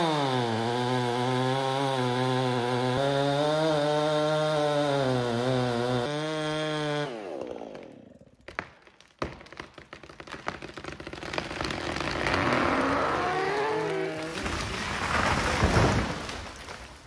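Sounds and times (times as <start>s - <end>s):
chainsaw running: 0.0s - 8.3s, 11.4s - 15.7s
wood cracking and snapping: 7.4s - 17.0s
falling tree rushing crackle: 9.1s - 17.0s.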